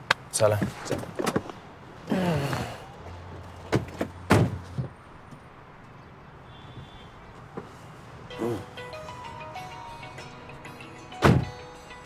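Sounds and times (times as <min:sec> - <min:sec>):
car door shutting: 0:11.2 - 0:11.6.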